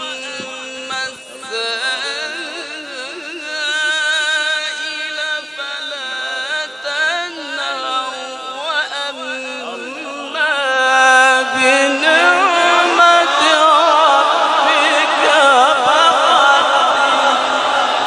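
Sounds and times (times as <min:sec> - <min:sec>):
man chanting through loudspeakers: 0:00.0 - 0:18.0
overlapping voices: 0:11.3 - 0:18.0.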